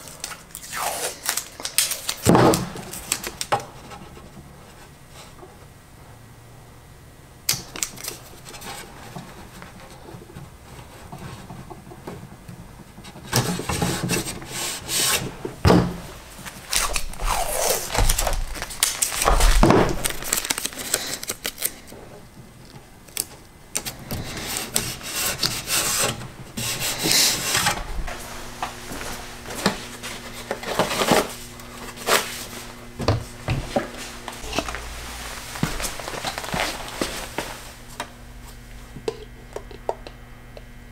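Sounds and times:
tape ripping off roll: 16.4s - 21.9s
tape rubbing: 16.4s - 21.9s, 34.3s - 37.8s.

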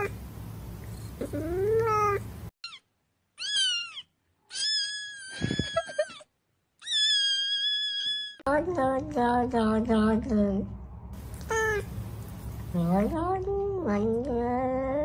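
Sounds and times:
low steady hum: 0.0s - 2.5s, 8.5s - 15.0s
cat meowing: 3.4s - 5.3s
kitten screaming meows: 3.4s - 5.4s, 6.8s - 8.4s.

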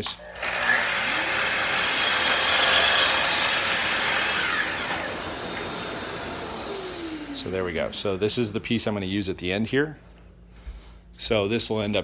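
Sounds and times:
miter saw motor whining: 0.3s - 8.6s
saw blade cutting wood: 0.4s - 7.4s.

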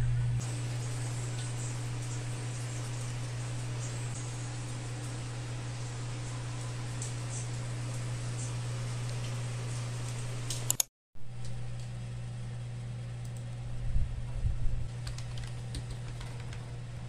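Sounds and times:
steady low hum: 0.0s - 17.0s
keyboard key clicks: 10.5s - 10.9s.

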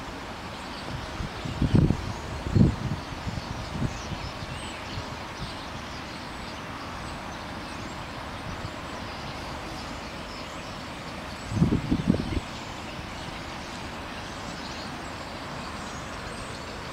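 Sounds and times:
distant road traffic: 0.0s - 16.9s
wind in trees: 0.0s - 16.9s
wind gust on microphone: 0.8s - 5.9s, 11.4s - 13.5s.

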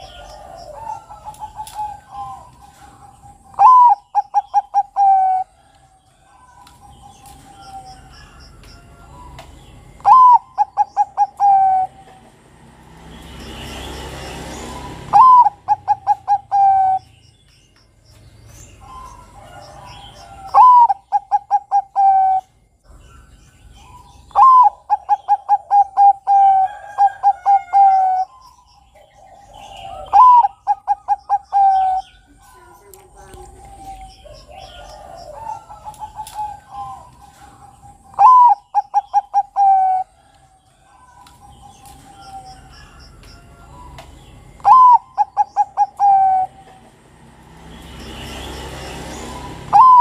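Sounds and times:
dove cooing song: 0.0s - 17.3s, 18.5s - 50.0s.

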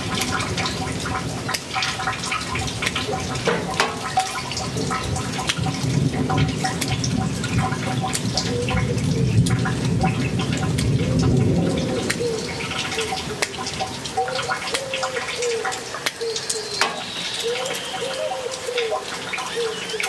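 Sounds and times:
drops dripping and splashing: 0.0s - 20.0s
steady rain falling: 0.0s - 20.0s.

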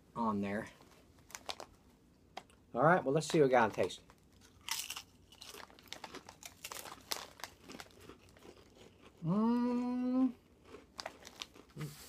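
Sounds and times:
potato chips crunching: 1.2s - 1.8s, 3.2s - 12.0s.

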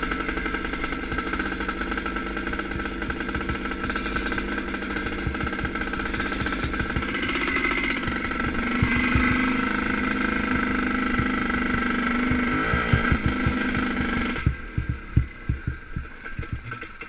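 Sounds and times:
two-stroke motorcycle engine: 0.0s - 17.0s
low thumps: 2.9s - 9.6s, 11.1s - 17.0s.

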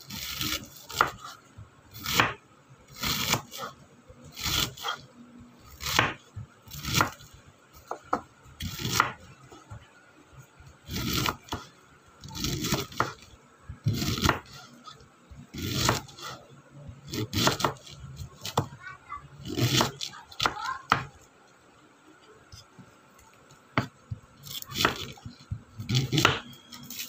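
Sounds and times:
knife slicing cabbage on board: 0.0s - 5.0s, 5.7s - 7.3s, 8.6s - 9.2s, 10.9s - 13.2s, 13.9s - 16.4s, 17.1s - 18.7s, 19.4s - 21.1s, 23.8s - 27.0s.

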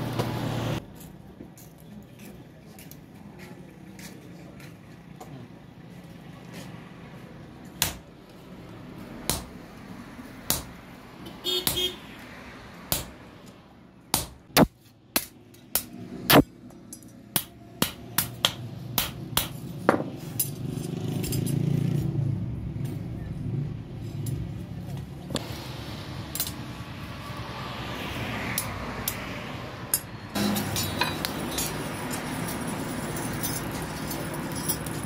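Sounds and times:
hammer striking metal on anvil: 10.5s - 10.8s, 29.9s - 32.2s.

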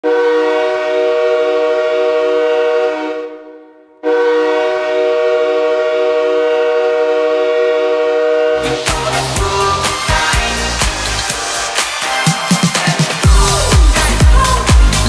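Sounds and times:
hockey goal horn blasts: 0.0s - 8.8s.

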